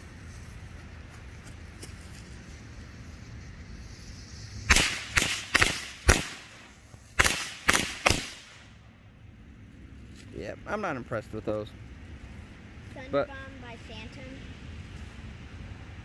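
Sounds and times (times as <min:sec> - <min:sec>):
firecracker bangs: 0:04.6 - 0:08.6.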